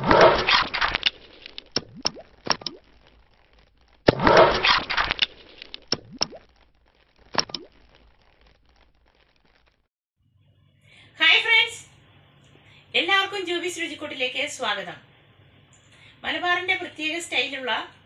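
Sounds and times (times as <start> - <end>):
bursts of sharp cracks and crackle: 0.0 - 9.9.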